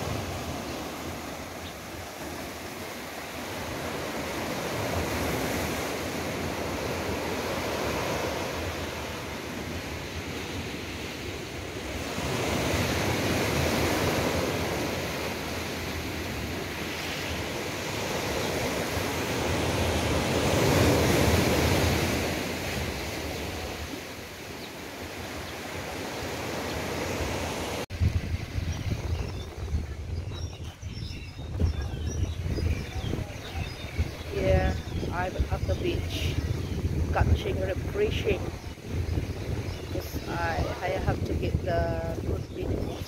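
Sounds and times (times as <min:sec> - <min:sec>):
waves breaking on beach: 0:00.0 - 0:28.7, 0:32.6 - 0:43.0
wind on microphone: 0:27.3 - 0:43.0.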